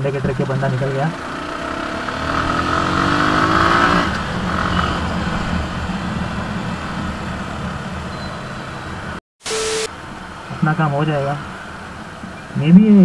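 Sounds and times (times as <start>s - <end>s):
wind and road noise: 0.0s - 9.2s, 9.8s - 13.0s
motorcycle engine accelerating: 0.2s - 9.2s
static glitch effect: 9.4s - 9.9s.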